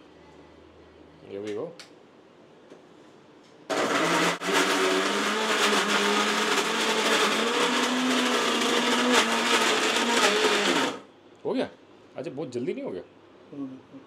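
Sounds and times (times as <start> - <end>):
mixer grinder motor whining: 3.7 - 11.1.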